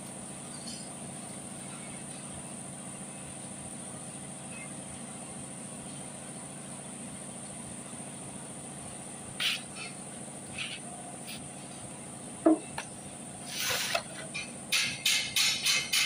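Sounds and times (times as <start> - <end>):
steady high-pitched hiss: 0.0 - 16.0.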